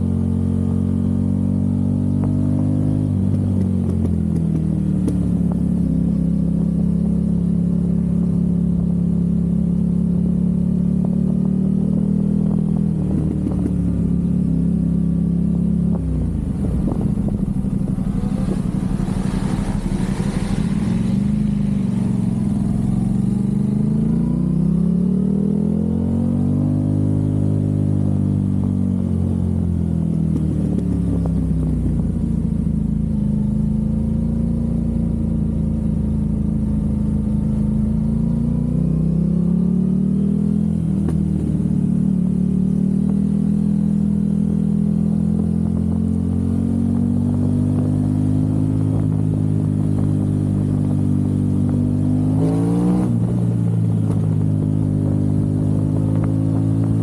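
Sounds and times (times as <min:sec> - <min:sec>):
motorcycle engine cruising: 0:00.0 - 0:57.0
exhaust crackling: 0:12.4 - 0:24.4.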